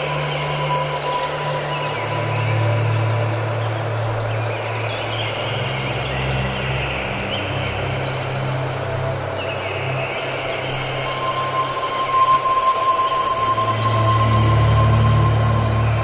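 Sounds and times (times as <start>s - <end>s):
low humming drone tones: 0.0s - 16.0s.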